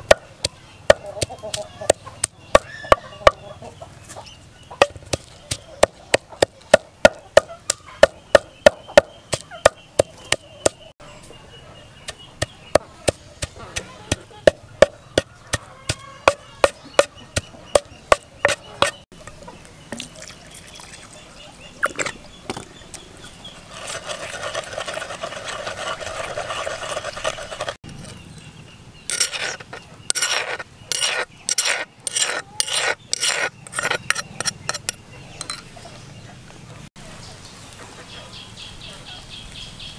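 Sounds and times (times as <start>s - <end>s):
pestle pounding in a mortar: 0.0s - 3.4s, 4.8s - 10.8s, 12.1s - 19.0s
rasping noise: 23.7s - 28.2s, 29.1s - 35.0s.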